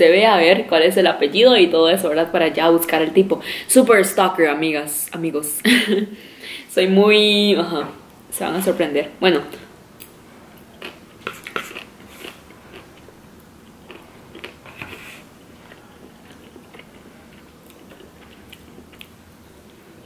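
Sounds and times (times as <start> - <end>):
person chewing food: 10.0 - 20.0.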